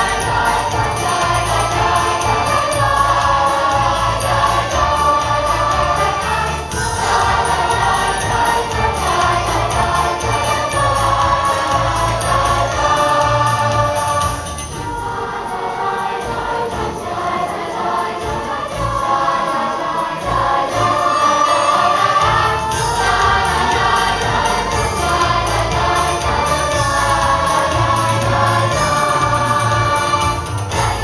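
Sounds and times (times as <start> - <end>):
choir singing: 0.0 - 31.0.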